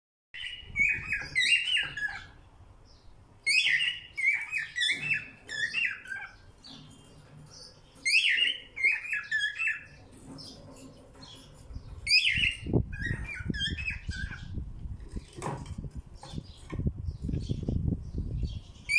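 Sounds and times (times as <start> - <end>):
cockatiel whistling song: 0.4 - 2.3, 3.5 - 6.3, 8.1 - 9.9, 12.1 - 14.4.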